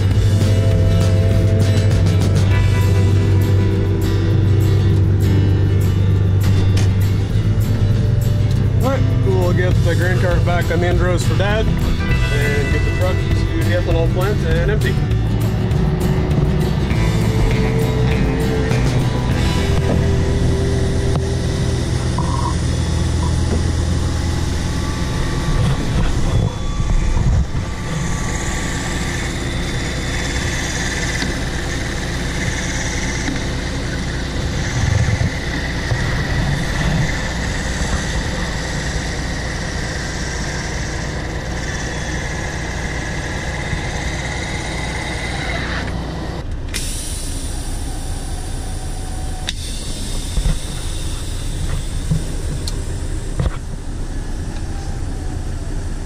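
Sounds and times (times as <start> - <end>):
combine harvester unloading grain: 0.0 - 56.0
steady machine whine: 0.0 - 56.0
truck idling: 0.0 - 56.0.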